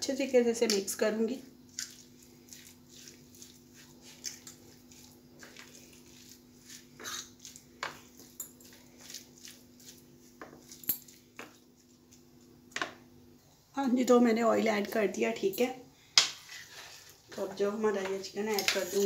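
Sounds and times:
hand mixing food in plastic tray: 1.6s - 12.8s.

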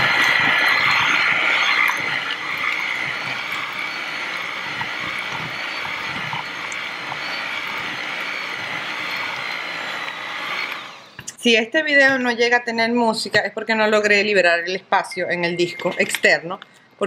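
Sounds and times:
electric hand mixer running: 0.0s - 11.3s.

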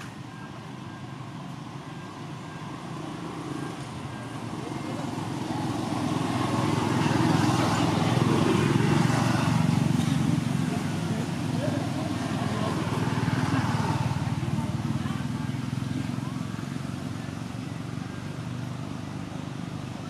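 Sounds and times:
vehicle engine approaching: 0.0s - 20.0s.

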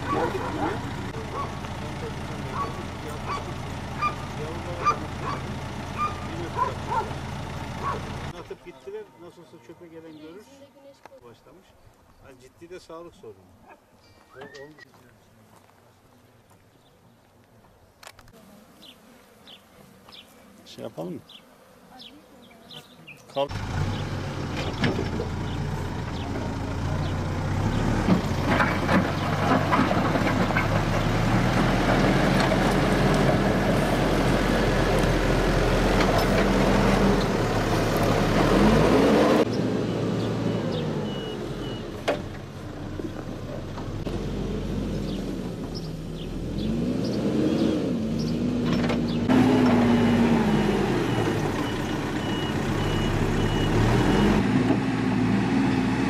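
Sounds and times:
diesel engine revving: 0.0s - 8.4s, 23.5s - 56.0s.

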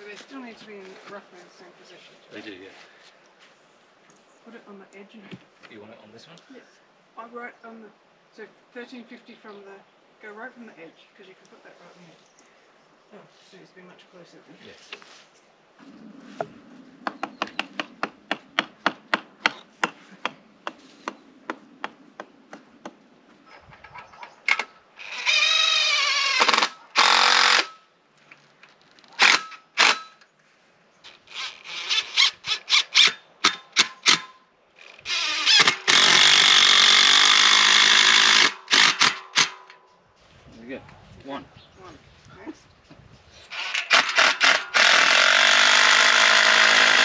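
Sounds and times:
sharp evenly spaced taps: 17.0s - 23.0s
drill motor spinning: 25.0s - 27.8s, 35.0s - 39.1s, 43.5s - 47.0s.

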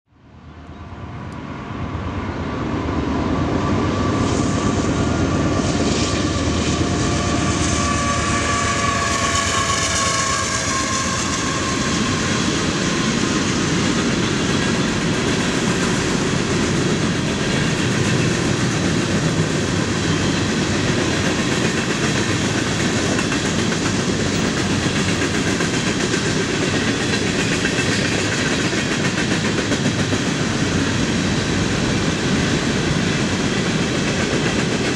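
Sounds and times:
train cars rumbling on rails: 0.6s - 34.9s.

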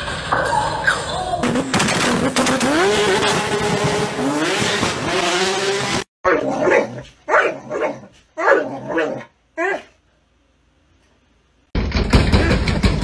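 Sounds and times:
dog barking: 6.3s - 10.0s.

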